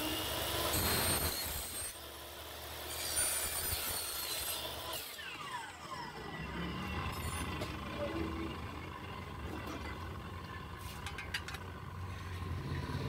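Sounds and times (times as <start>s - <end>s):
saw cutting metal whine: 0.0s - 10.7s
motor winding down: 4.4s - 9.6s.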